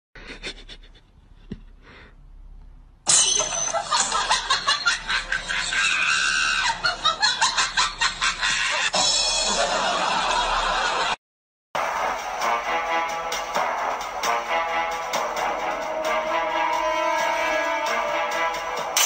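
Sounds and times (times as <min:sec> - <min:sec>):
person shrieking with laughter: 0:05.5 - 0:07.1, 0:08.4 - 0:09.0.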